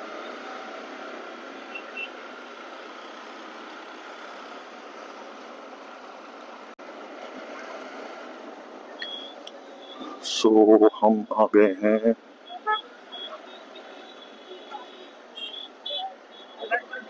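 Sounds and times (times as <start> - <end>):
wind and road rush: 0.0 - 10.3.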